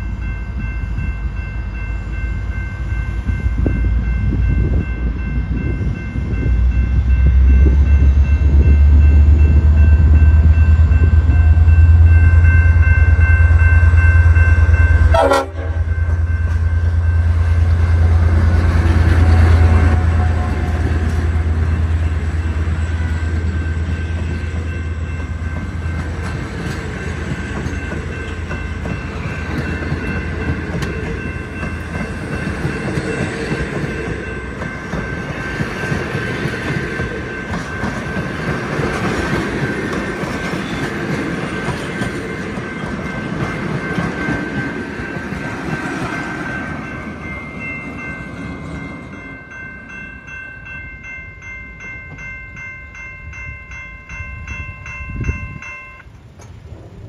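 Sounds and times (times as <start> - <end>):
train wheels clicking over rail joints: 17.7 - 48.8.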